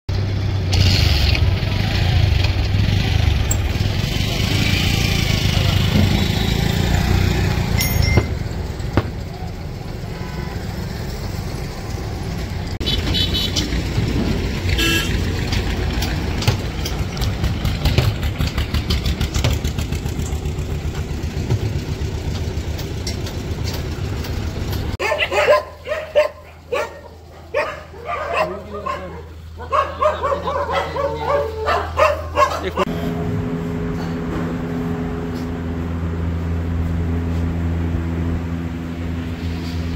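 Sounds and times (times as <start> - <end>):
road traffic: 0.1 - 39.9
motorcycles passing: 0.3 - 39.9
vehicle horn: 10.0 - 10.9, 12.8 - 13.7, 14.7 - 15.3
dogs barking: 25.0 - 32.9.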